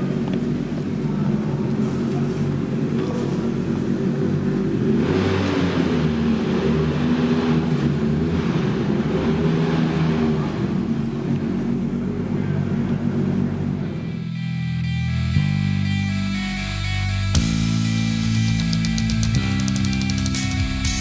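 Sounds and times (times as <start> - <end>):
race car engine idling: 0.0 - 14.3
music: 14.0 - 21.0.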